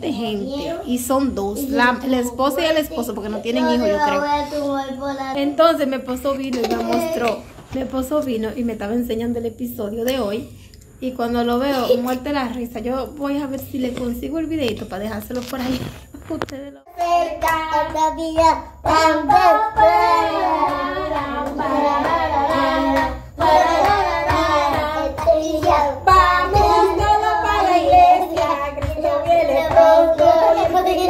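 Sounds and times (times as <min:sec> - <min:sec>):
young children singing: 0:16.9 - 0:31.0.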